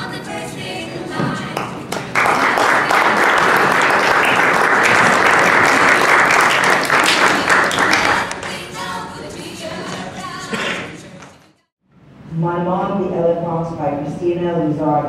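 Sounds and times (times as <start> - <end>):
audience applause: 1.9 - 8.4.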